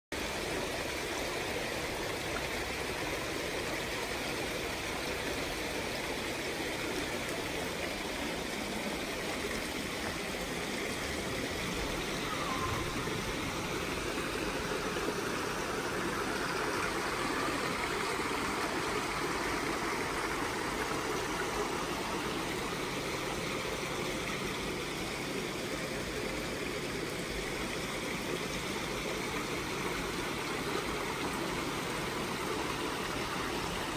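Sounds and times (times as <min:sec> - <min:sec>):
waterfall spilling into pond: 0:00.2 - 0:33.9.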